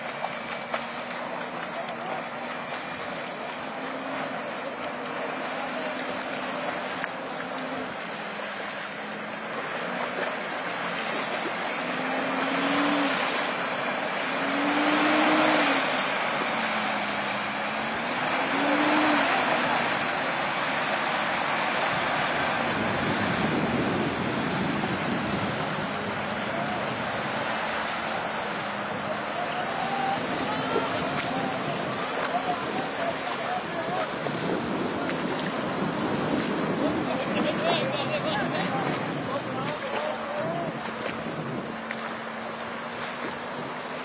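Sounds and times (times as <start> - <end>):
engine revving: 0.0 - 33.4
tyres churning through mud: 0.0 - 44.0.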